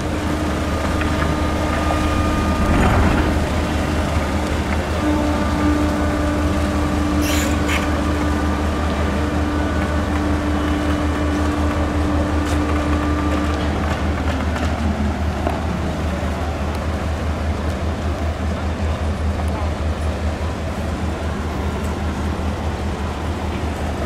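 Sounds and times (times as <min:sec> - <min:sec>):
higher steady hum: 0:00.0 - 0:14.2
ship engines droning: 0:00.0 - 0:24.0.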